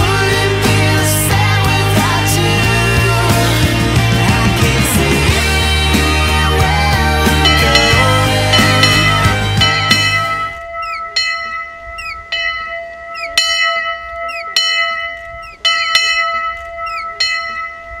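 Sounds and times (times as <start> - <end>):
music: 0.0 - 10.6
hand bell ringing: 7.4 - 18.0
faint high squeaks: 16.4 - 18.0.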